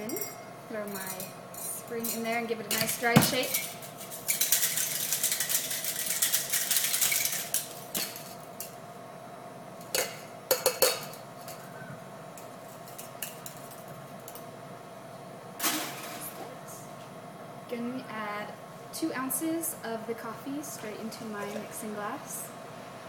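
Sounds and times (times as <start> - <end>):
cocktail shaker metallic clatter: 3.4 - 8.8.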